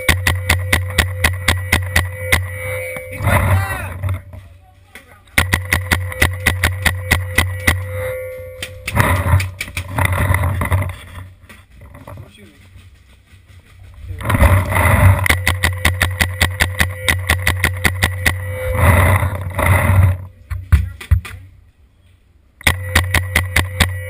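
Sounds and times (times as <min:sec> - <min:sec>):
paintball marker rapid shots: 0:00.0 - 0:02.5, 0:05.4 - 0:07.8, 0:14.2 - 0:18.4, 0:22.6 - 0:24.0.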